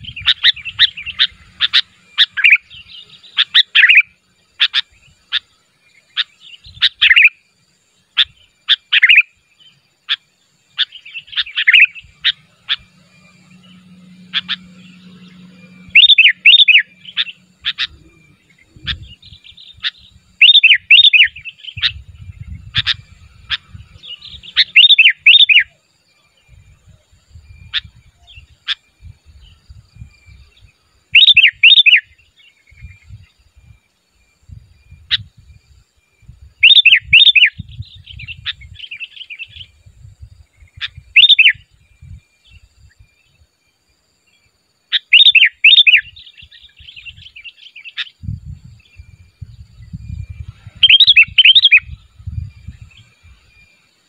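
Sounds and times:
bird whistled calls: 0.0s - 7.4s, 8.2s - 9.3s, 10.8s - 25.8s, 30.2s - 33.8s, 36.5s - 39.8s, 40.6s - 43.3s, 44.9s - 48.2s, 48.8s - 53.9s
soft bird chatter: 0.0s - 54.0s.

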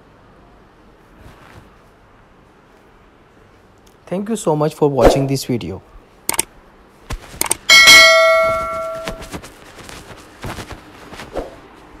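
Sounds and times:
notification bell ding: 7.7s - 9.3s.

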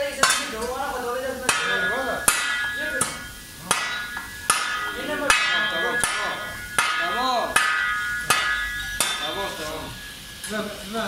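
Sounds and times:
shovel blade clanging on concrete: 1.5s - 9.8s.

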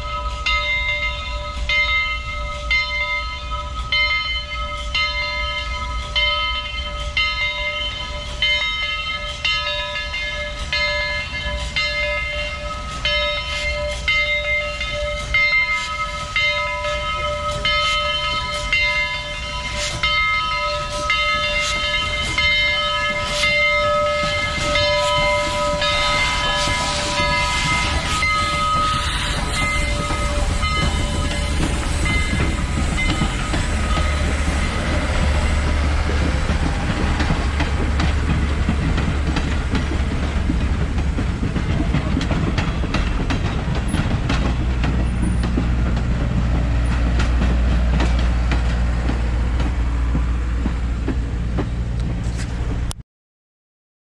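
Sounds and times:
train wheels rumbling and clacking: 0.0s - 53.0s
steam locomotive whistle: 17.4s - 38.4s.

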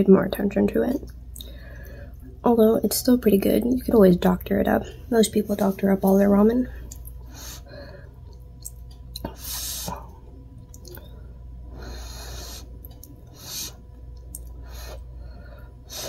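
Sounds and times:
breath blowing in airy puffs: 9.3s - 10.0s.

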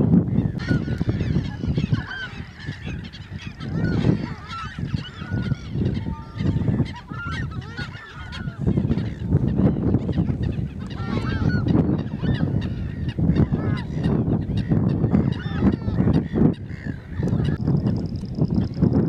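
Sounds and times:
waterbirds honking: 0.3s - 17.7s.

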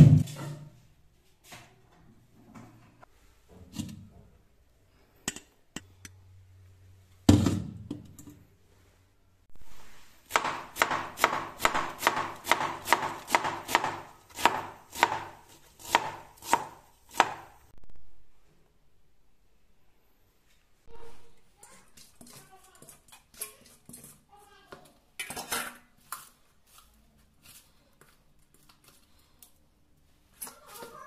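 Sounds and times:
knife chopping on cutting board: 10.3s - 17.6s.

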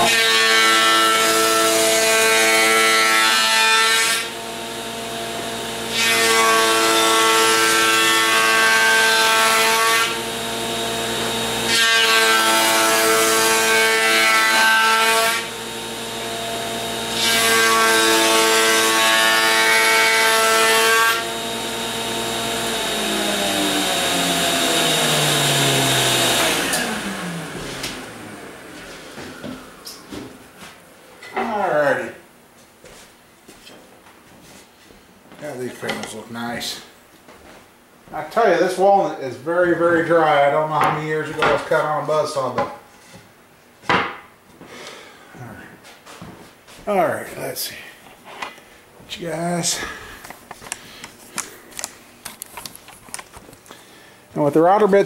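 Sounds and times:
router running: 0.0s - 30.4s
router cutting wood: 0.0s - 30.5s
router whine spinning down: 21.1s - 30.3s.

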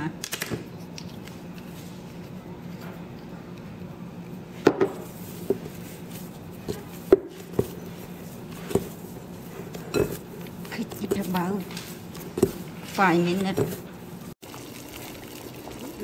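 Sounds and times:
dough being kneaded by hand: 0.6s - 14.5s.

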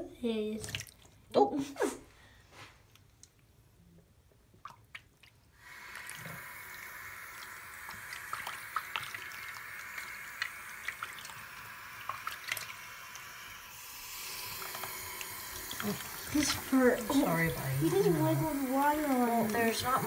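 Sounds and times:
water dripping and splashing: 0.5s - 1.3s, 4.6s - 20.0s
tap water running: 5.6s - 20.0s.

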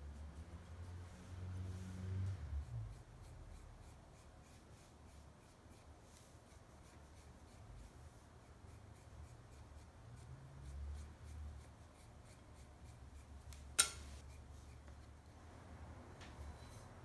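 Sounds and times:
sharp click: 13.5s - 14.1s.

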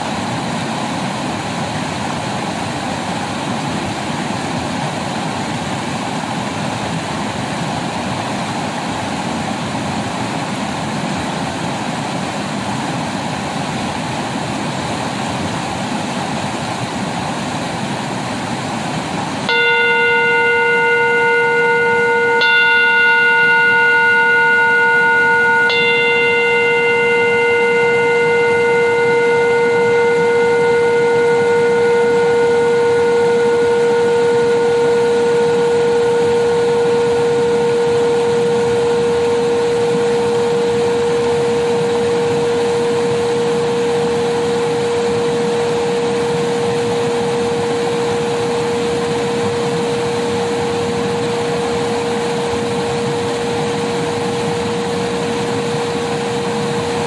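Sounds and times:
meditation bell ringing: 19.4s - 57.0s.

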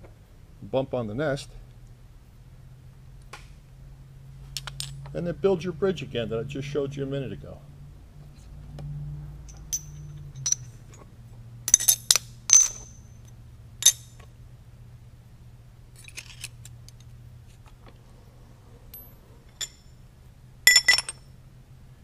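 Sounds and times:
steady low hum: 0.0s - 22.0s
metal parallels clinking: 9.4s - 14.3s, 15.9s - 17.2s, 18.8s - 20.0s, 20.6s - 21.4s.

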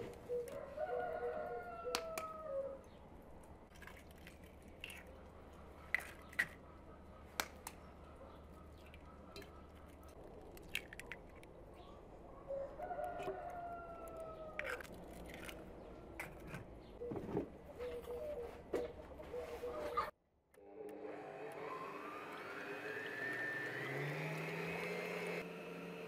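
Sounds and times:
rooster crowing: 0.6s - 2.8s, 12.5s - 14.6s
eggs being cracked: 9.4s - 11.5s, 14.1s - 15.7s.

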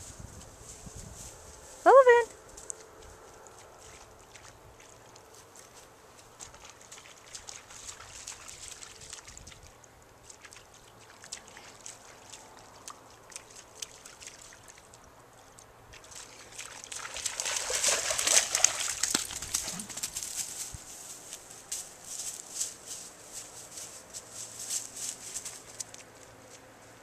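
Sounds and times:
dog splashing in water: 3.8s - 15.0s, 15.9s - 20.5s.

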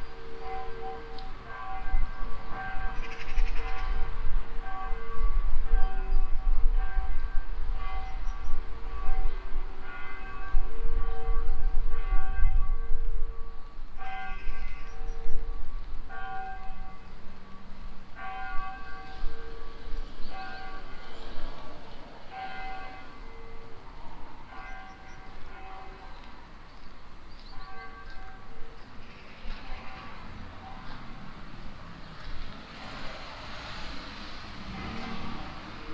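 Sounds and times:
church bells ringing: 0.0s - 35.9s.

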